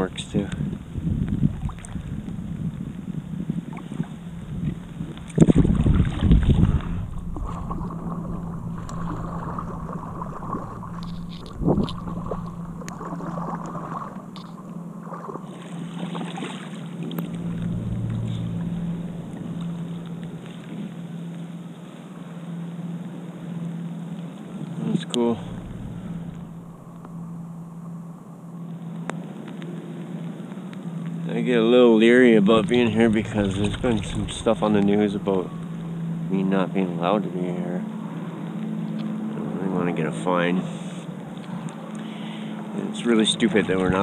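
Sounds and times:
wind on microphone: 0:00.0 - 0:15.3, 0:16.1 - 0:21.6, 0:25.0 - 0:27.9, 0:32.1 - 0:36.4
paddle splashing in water: 0:03.7 - 0:21.5
loud rumbling: 0:04.2 - 0:15.0, 0:16.9 - 0:21.8, 0:25.0 - 0:28.6, 0:32.1 - 0:37.0.

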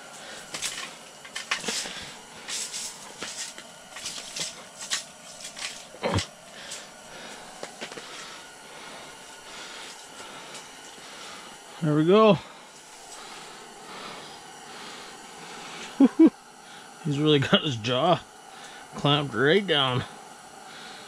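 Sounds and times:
rustling and scraping on snowy ice: 0:00.2 - 0:05.9.

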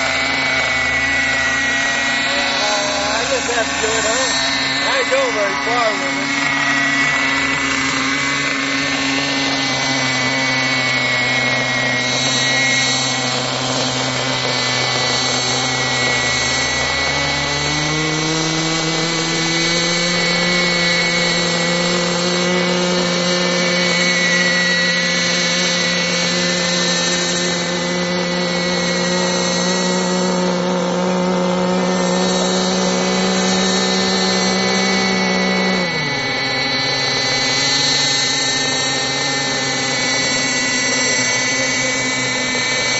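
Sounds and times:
model helicopter rotors whining: 0:00.0 - 0:42.9.

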